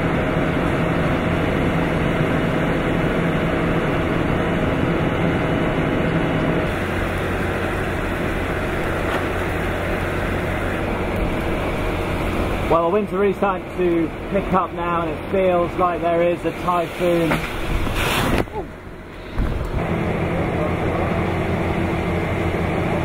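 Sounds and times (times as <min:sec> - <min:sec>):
low hum: 0:00.0 - 0:23.0
strong wind: 0:17.0 - 0:20.2.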